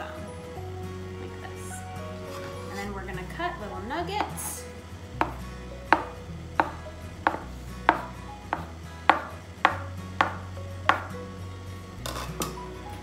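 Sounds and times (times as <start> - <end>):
bench scraper knocking on surface: 5.2 - 11.2.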